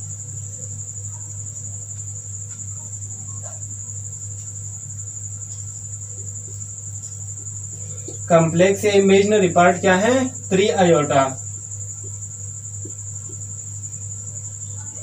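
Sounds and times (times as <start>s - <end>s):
high-pitched whine: 5.4s - 15.0s.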